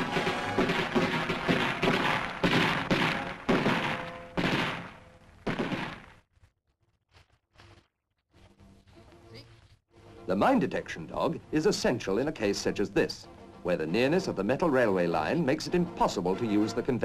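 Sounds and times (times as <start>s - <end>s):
gunshots with echoing tail: 0.0s - 6.2s.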